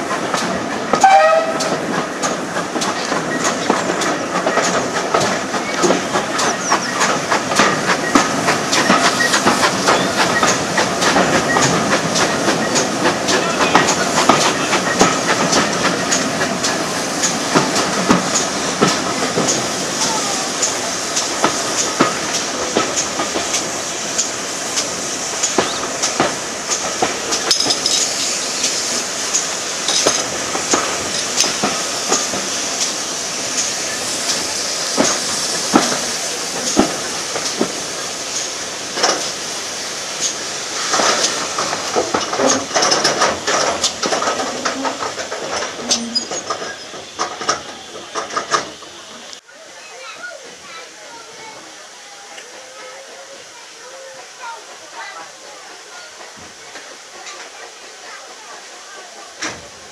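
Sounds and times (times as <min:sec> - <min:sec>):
train wheels on rails: 0:00.0 - 0:59.9
sharp clicks and knocks: 0:40.2 - 0:48.8.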